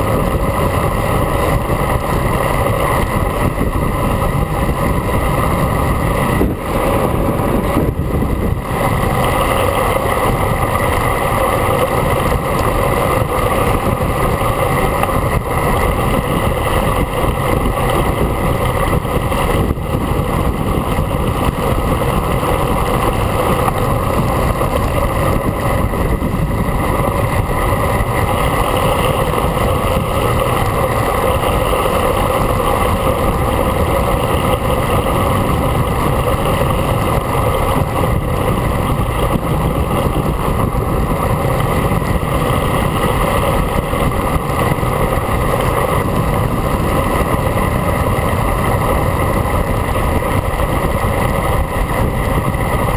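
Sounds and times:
wind rushing over camera: 0:00.0 - 0:52.9.

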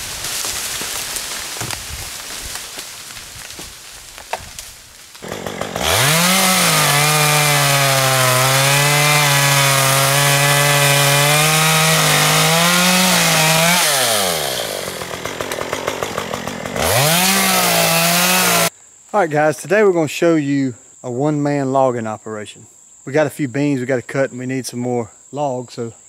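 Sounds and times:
chainsaw cutting timber: 0:00.0 - 0:18.7.

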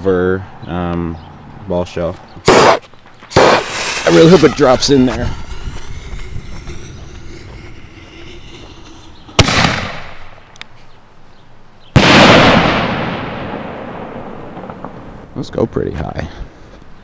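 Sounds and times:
firework shell bangs: 0:02.5 - 0:04.5, 0:09.4 - 0:10.3
echoing rumble: 0:03.3 - 0:10.5.

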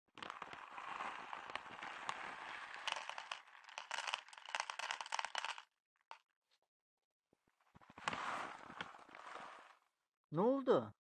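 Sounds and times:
plastic bag crinkling: 0:00.2 - 0:05.6
kibble rattling into plastic bowl: 0:00.2 - 0:05.7.

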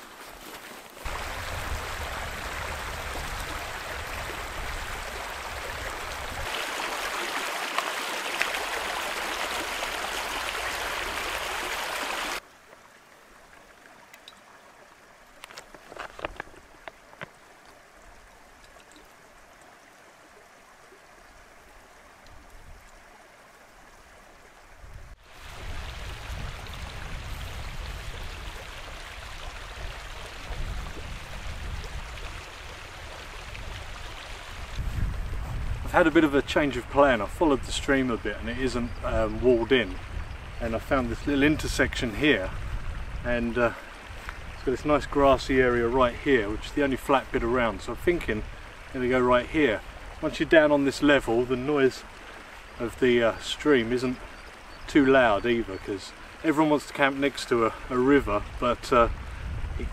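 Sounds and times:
stream rushing over rocks: 0:00.0 - 0:59.9
wind rumbling on microphone: 0:01.0 - 0:06.5, 0:24.6 - 0:50.3, 0:58.1 - 0:59.9
water trickling into bottle: 0:13.5 - 0:20.1.

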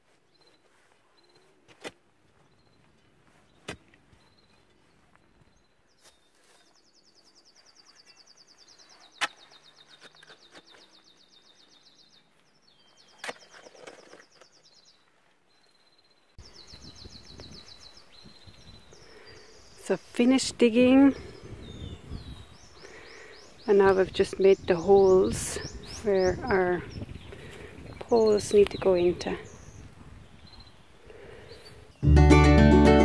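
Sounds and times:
digging tools striking earth: 0:09.2 - 0:10.9, 0:13.1 - 0:14.6.

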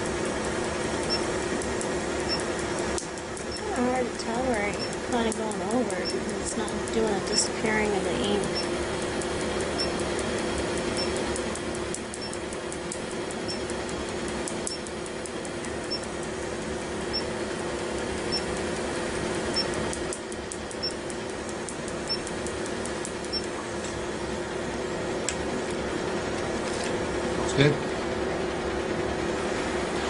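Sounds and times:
rapid faint clicks: 0:00.0 - 0:16.8
machine hum: 0:00.0 - 0:30.0.

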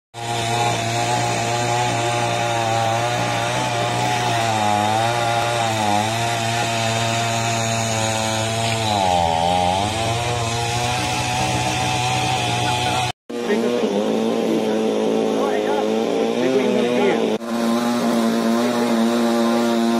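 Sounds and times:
chainsaw cutting wood: 0:00.2 - 0:19.9
diesel engine hum: 0:00.2 - 0:19.9.

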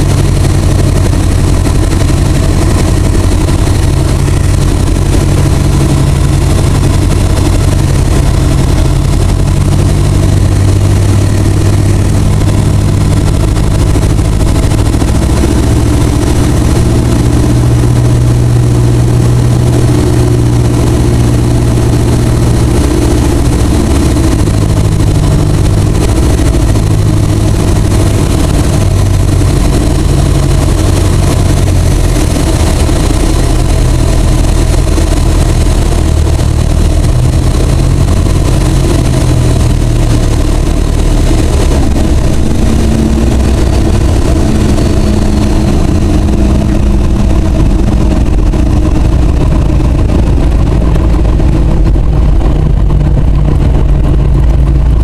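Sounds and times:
aircraft piston engine and propeller: 0:00.0 - 0:55.0.

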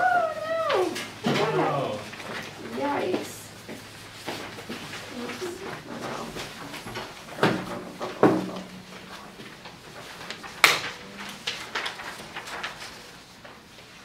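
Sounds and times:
paper rustling: 0:00.6 - 0:14.0
paper knocks and taps: 0:06.4 - 0:08.8.

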